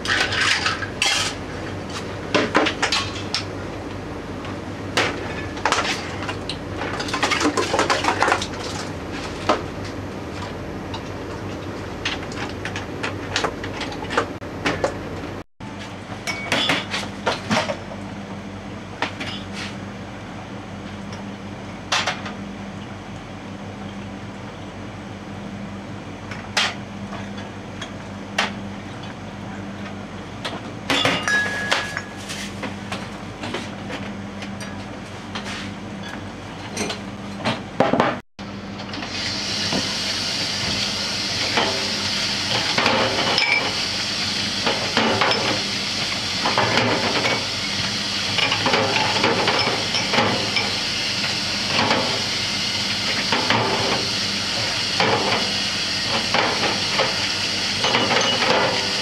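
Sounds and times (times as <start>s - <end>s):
glasses and bottles clinking: 30.9s - 32.4s.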